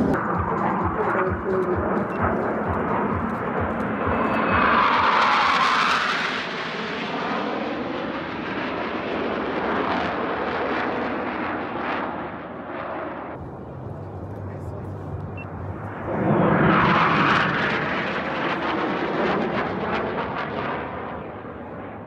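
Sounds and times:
jet aircraft flying past: 0.0 - 22.0.

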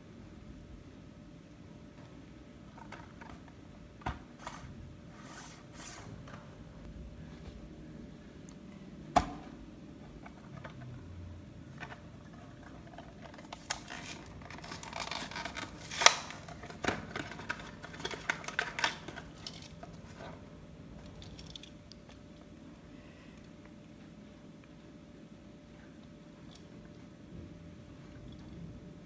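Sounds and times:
plastic blister pack crackling: 12.2 - 20.2.

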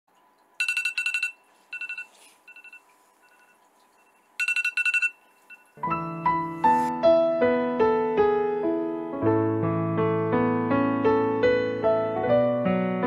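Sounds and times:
phone ringing with fast beeps: 0.6 - 6.0
soft piano music: 5.8 - 13.0.

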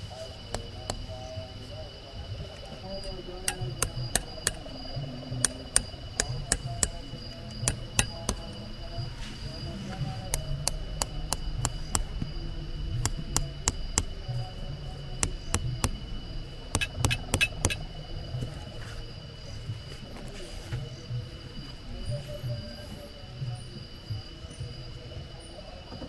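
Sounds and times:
hammer driving a stake: 3.5 - 4.6, 7.6 - 8.5, 13.0 - 14.1, 16.8 - 17.8.

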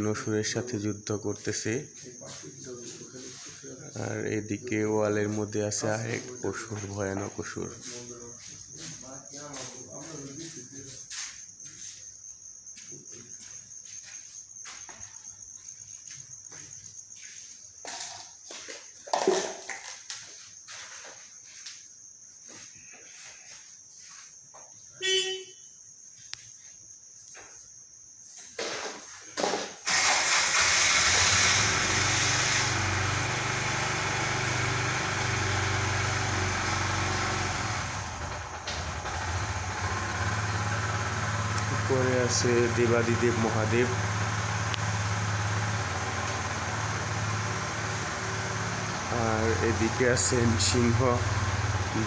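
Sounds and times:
hiss: 29.8 - 37.7.

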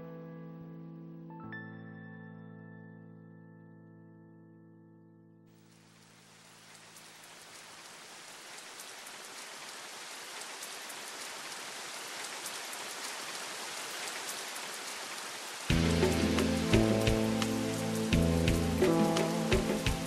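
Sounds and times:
steady rain: 5.5 - 20.0
raindrops ticking: 5.8 - 20.0.

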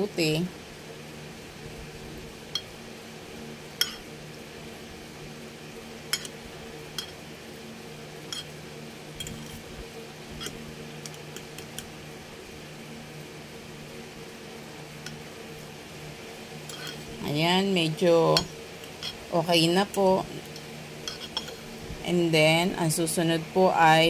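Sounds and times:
steady low hum: 0.0 - 24.0
fork clinking against ceramic bowl: 21.1 - 21.6.

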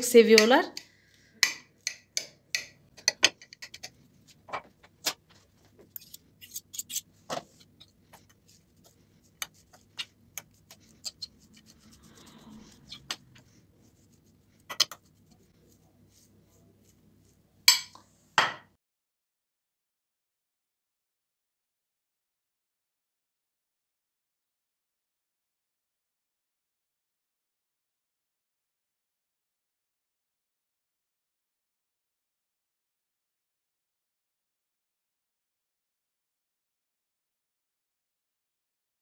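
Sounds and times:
hands rustling while mixing: 3.5 - 18.4
metal utensil scraping glass dish: 6.0 - 7.1.

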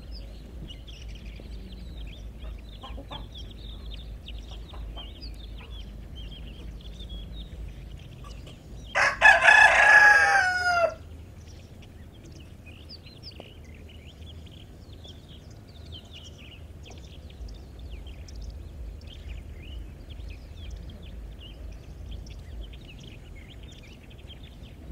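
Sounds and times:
hens clucking: 0.0 - 11.0
rooster crowing: 8.9 - 11.1.

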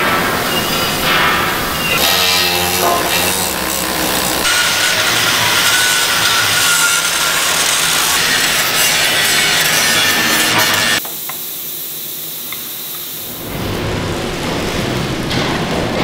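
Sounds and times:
angle grinder grinding steel: 1.6 - 11.0.

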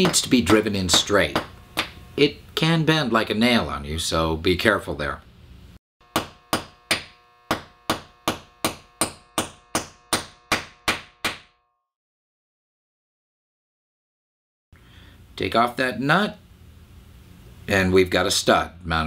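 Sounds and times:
hammer striking metal pin: 6.1 - 11.5.

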